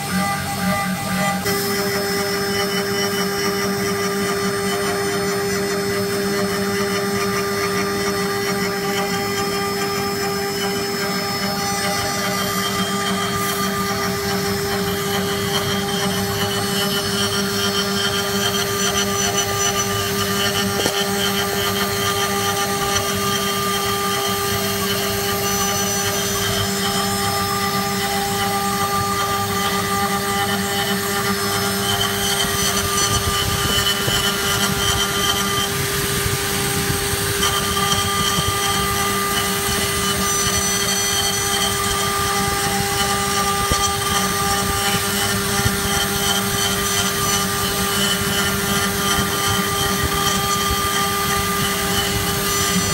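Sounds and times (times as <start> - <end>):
router spindle carving wood: 0.0 - 52.9.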